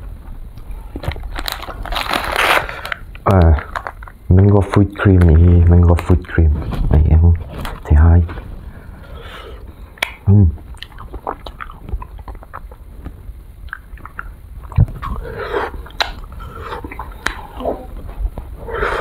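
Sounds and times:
wet lip smacks and chewing: 10.0s - 12.8s, 13.6s - 15.2s, 15.8s - 17.6s
person humming: 16.8s - 18.0s.

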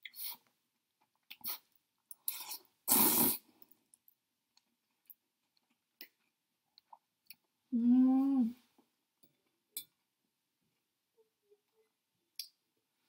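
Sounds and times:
person slurping noodles: 1.4s - 3.5s.

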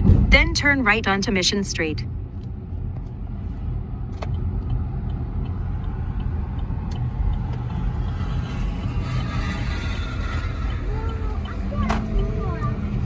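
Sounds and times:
car road rumble: 0.0s - 13.0s.

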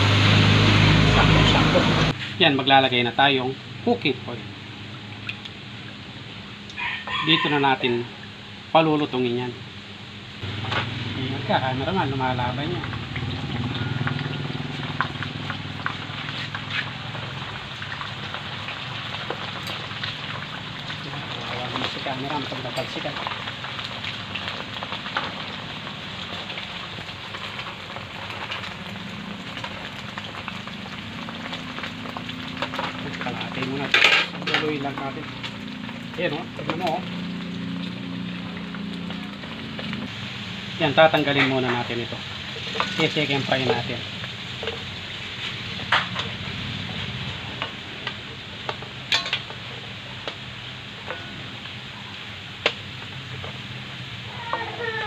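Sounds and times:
fat sizzling in hot oil: 0.0s - 55.0s
utensils knocking against wok: 42.7s - 43.9s, 48.7s - 49.6s.

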